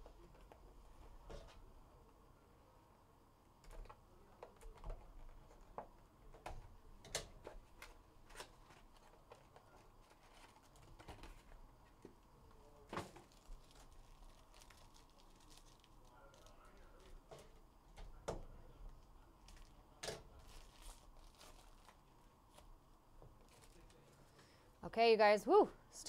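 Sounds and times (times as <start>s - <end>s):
foil pack rustling: 13.0s - 17.2s, 20.3s - 22.7s.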